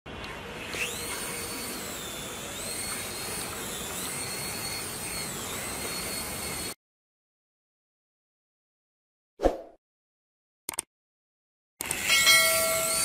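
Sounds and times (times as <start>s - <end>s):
toy helicopter motor whining: 0.2s - 6.8s, 11.8s - 13.0s.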